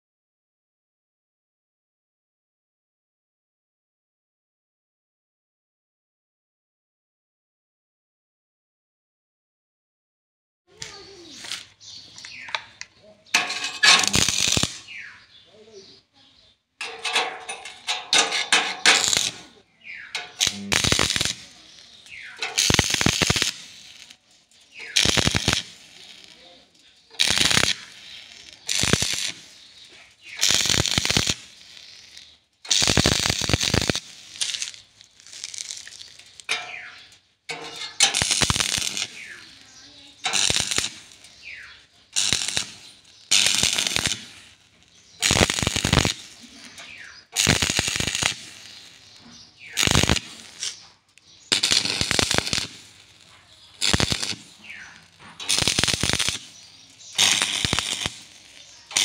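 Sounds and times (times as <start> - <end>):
arc welder bursts: 10.7 - 11.8, 12.4 - 15.3, 16.8 - 59.0.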